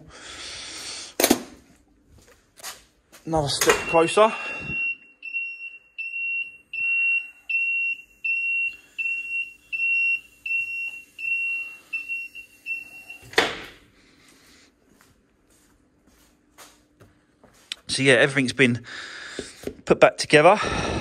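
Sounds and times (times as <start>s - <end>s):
high-pitched warning beeps: 3.6s - 13.3s.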